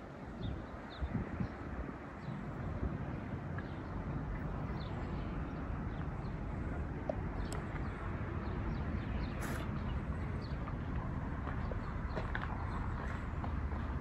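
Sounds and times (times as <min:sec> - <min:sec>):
brief hiss: 0:09.4 - 0:09.7.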